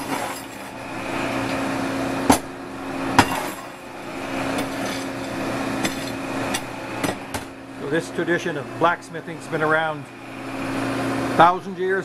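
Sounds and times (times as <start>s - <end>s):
metal shovel clinking: 0.0s - 0.7s
forge fire humming and rushing: 0.0s - 11.6s.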